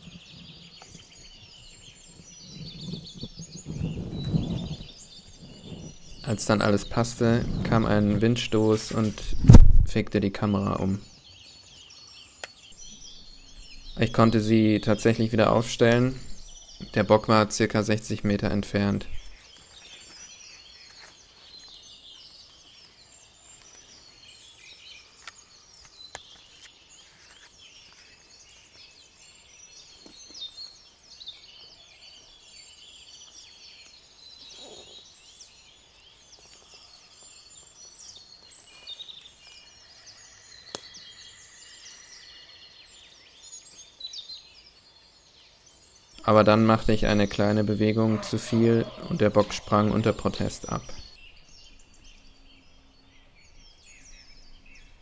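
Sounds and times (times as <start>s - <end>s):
songbirds chirping and trilling: 0.0s - 55.0s.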